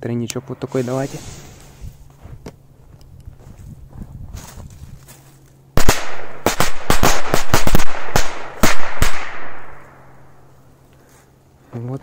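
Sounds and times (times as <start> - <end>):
firecrackers banging: 5.8 - 9.9.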